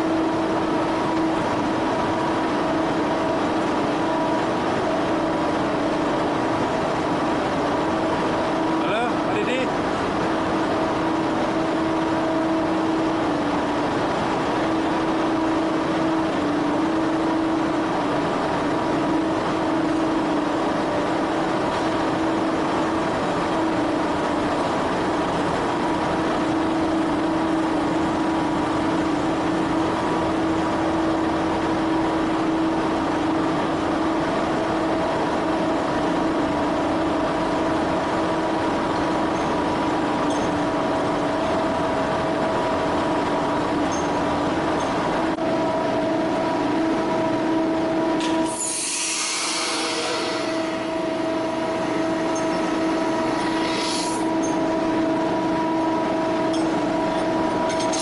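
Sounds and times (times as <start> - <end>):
constant hum tones: 0.0 - 48.8, 49.6 - 58.0
machine drone: 45.3 - 58.0.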